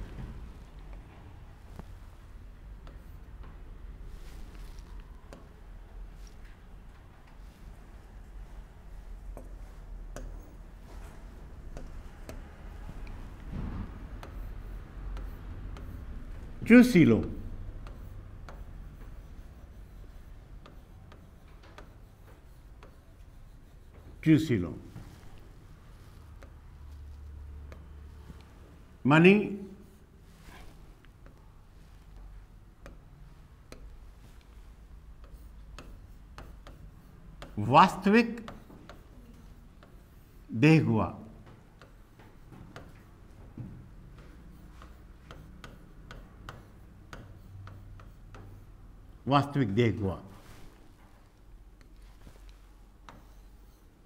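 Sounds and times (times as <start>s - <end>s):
low room hum: 0.0s - 54.0s
stylus tapping on screen: 9.3s - 24.2s, 31.0s - 37.7s, 38.3s - 39.2s, 41.3s - 49.0s.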